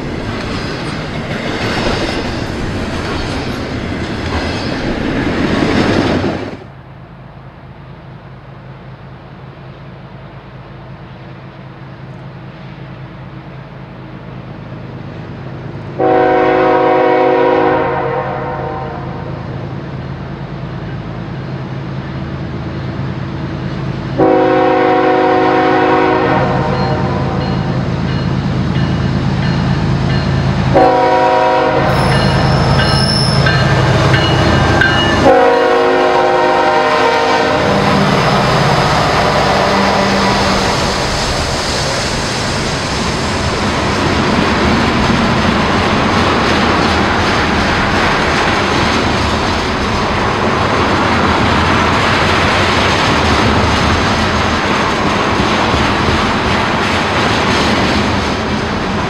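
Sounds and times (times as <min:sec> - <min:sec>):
train wheels running by: 0:00.0 - 0:59.0
train air horn blasts: 0:16.0 - 0:19.3, 0:24.2 - 0:27.4, 0:30.7 - 0:33.7, 0:35.2 - 0:38.3.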